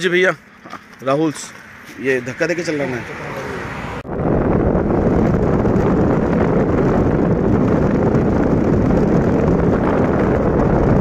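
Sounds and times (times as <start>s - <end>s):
car road and engine noise: 0.0s - 11.0s
wind buffeting microphone: 3.5s - 11.0s.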